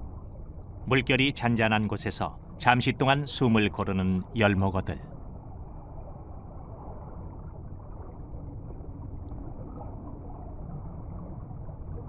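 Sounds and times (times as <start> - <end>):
faint ticks: 1.8 - 2.5.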